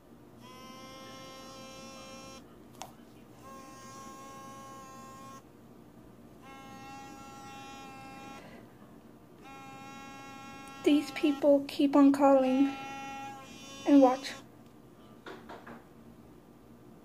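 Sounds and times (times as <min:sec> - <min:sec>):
phone buzzing tone: 0:09.4 - 0:11.6.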